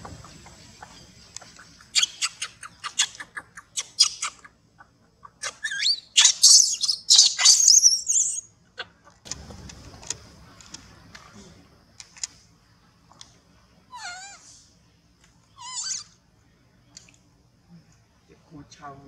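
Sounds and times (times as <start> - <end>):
baby monkey squeaking: 0.3 - 8.9, 13.9 - 14.5, 15.5 - 16.2
baby monkey screaming: 1.8 - 4.6, 5.2 - 8.5, 13.9 - 14.6, 15.5 - 16.2.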